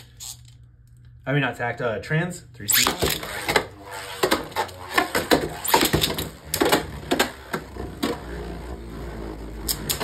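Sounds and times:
low whir of spinning top: 0:02.7 - 0:10.0.

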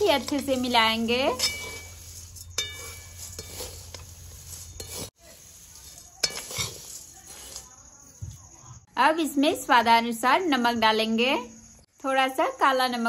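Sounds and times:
spatula scraping dry snack in pan: 0:00.0 - 0:08.2
spatula clinking against pan: 0:00.1 - 0:04.0, 0:06.1 - 0:07.0.

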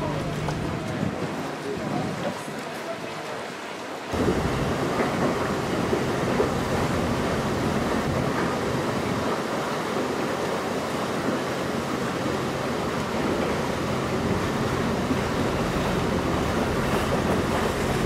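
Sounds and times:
motorboat engine droning: 0:00.0 - 0:02.3, 0:03.9 - 0:18.0
wind on microphone: 0:00.0 - 0:02.6, 0:04.1 - 0:09.6
water rushing along hull: 0:00.0 - 0:18.0.

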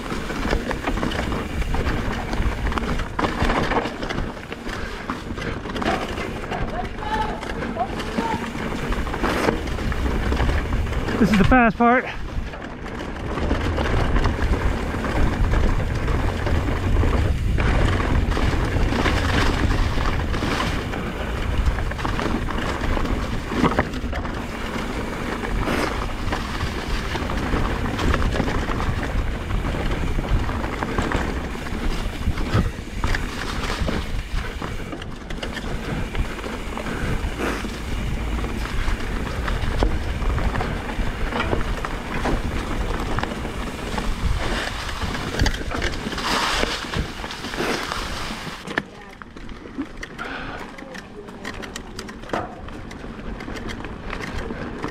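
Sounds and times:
bike clattering and rattling: 0:00.0 - 0:54.9
tyres rumbling over rock: 0:00.0 - 0:54.9
wind rushing over microphone: 0:08.1 - 0:48.6.

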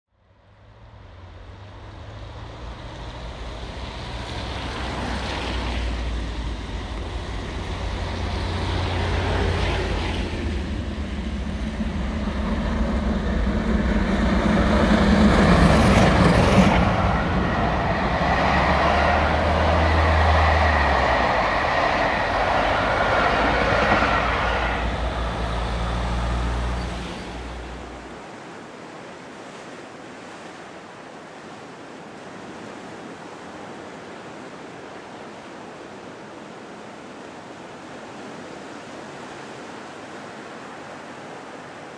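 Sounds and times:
train rumbling past: 0:00.4 - 0:28.2.

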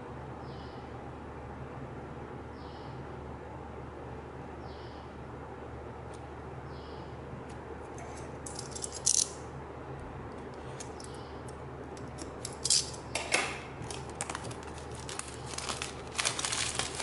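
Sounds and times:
plastic shrink-wrap crinkling: 0:13.8 - 0:17.0.

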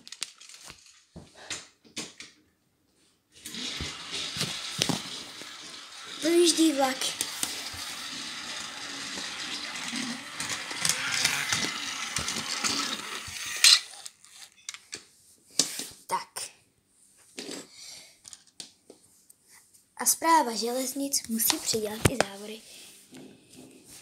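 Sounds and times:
model train motor whirring: 0:03.4 - 0:14.5.

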